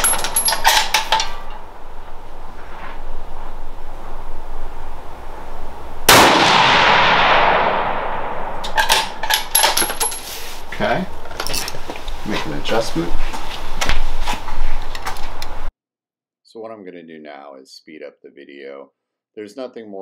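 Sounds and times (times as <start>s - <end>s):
metallic clicks of gear handling: 0.0s - 1.6s
rifle shot: 6.1s - 9.2s.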